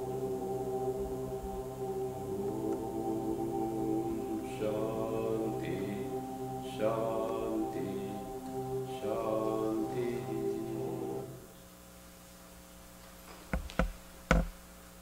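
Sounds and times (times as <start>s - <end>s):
steady low tone: 0.0s - 11.6s
man chanting: 2.1s - 11.5s.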